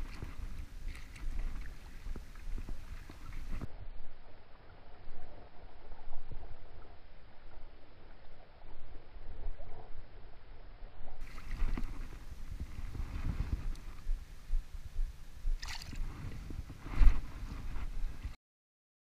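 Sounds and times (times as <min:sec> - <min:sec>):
water splashing and sloshing: 0:00.0 - 0:03.7, 0:11.2 - 0:14.6, 0:15.5 - 0:18.4
wind rumble on microphone: 0:00.0 - 0:18.4.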